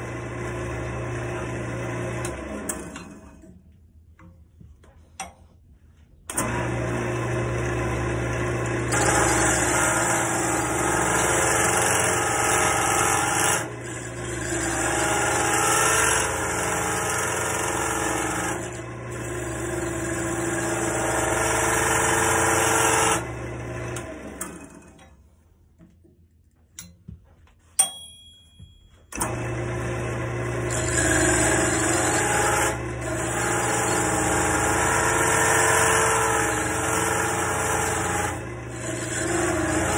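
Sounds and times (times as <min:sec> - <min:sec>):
wood lathe motor humming: 0:00.0 - 0:02.9, 0:06.3 - 0:24.9, 0:29.2 - 0:39.9
lathe spinning down: 0:29.2 - 0:39.9.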